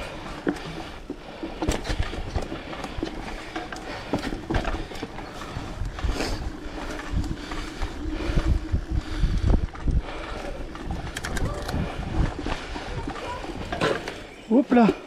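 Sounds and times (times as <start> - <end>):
bike rattling jolts: 0.0 - 15.0
bike tyre rumble on dirt: 0.0 - 15.0
sharp clicks from bike: 9.7 - 14.3.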